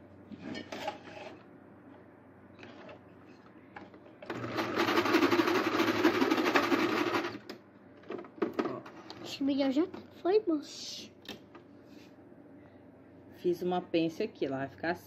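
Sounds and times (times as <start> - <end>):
sewing machine stitching: 4.2 - 7.4.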